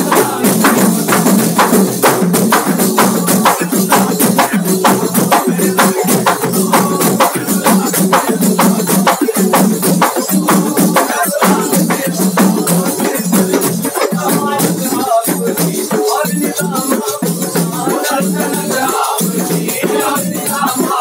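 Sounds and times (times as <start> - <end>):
frame drums beating: 0.0 - 21.0.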